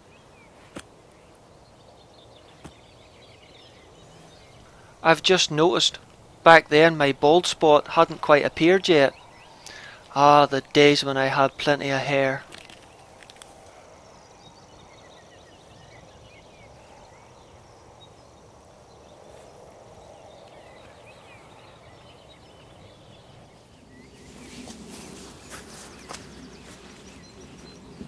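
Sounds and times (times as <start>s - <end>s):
songbirds chirping and singing: 0.0s - 28.0s
steady outdoor noise: 0.0s - 28.0s
clothing and netting rustling: 23.9s - 28.0s
footsteps: 24.2s - 28.0s.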